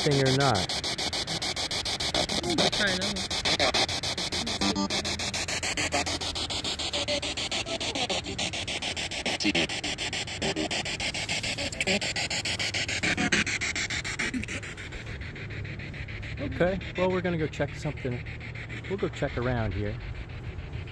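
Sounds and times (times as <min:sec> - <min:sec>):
snatches of broadcast sound: 0:00.0 - 0:14.6.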